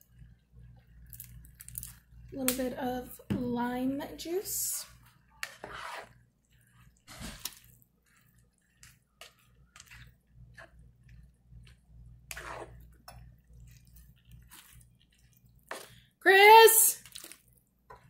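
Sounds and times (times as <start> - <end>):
spatula scraping food in pan: 5.2 - 16.0.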